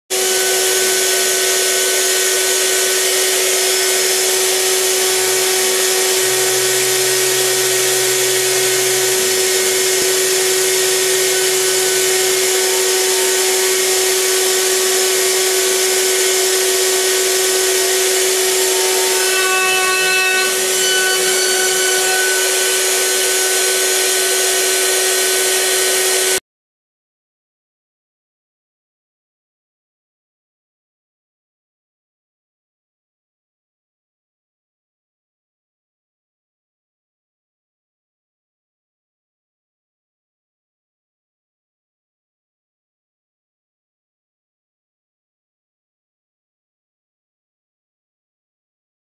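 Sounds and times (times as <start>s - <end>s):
cutter hissing through wood: 0.2s - 26.4s
milling spindle high whine: 0.2s - 26.4s.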